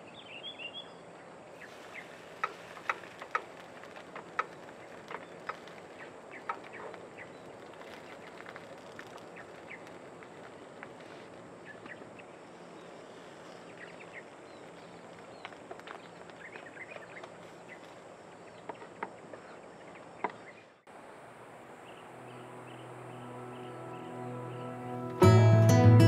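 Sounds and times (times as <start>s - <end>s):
birds chirping: 0.0s - 10.8s, 11.5s - 25.9s
faint outdoor hiss: 0.0s - 26.0s
soft guitar music: 22.2s - 26.0s.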